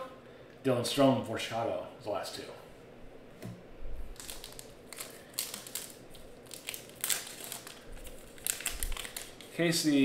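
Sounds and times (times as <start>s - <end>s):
foil wrapper crinkling and tearing: 4.1s - 10.0s.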